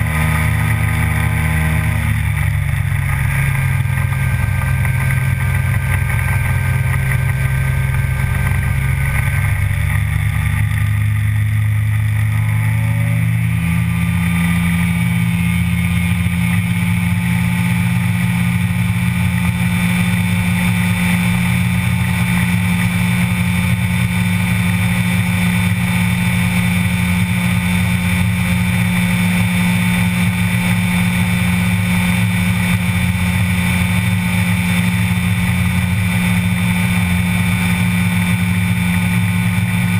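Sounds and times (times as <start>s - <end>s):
ultralight aircraft engine: 0.0s - 39.9s.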